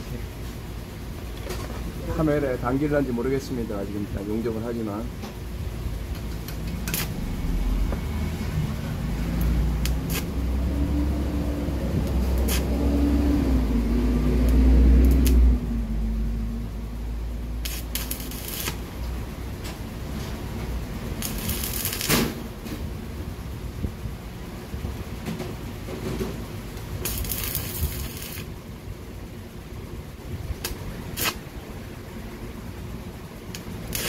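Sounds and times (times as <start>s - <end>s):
low rumble: 5.6s - 25.1s
welding arc crackle: 6.1s - 15.7s, 17.1s - 22.6s, 26.7s - 28.6s, 30.4s - 31.6s, 33.4s - 34.0s.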